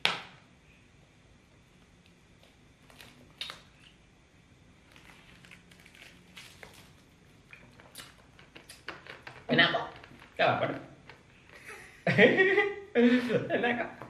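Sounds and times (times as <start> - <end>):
fruit flesh squishing: 2.3 - 4.0, 4.8 - 11.3
plastic bottle crackling: 4.9 - 11.6.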